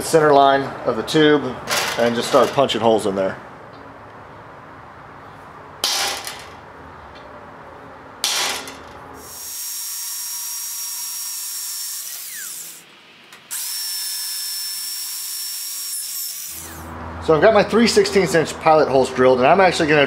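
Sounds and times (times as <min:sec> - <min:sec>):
hand drill whining through steel: 0:09.2 - 0:12.8, 0:13.5 - 0:16.9.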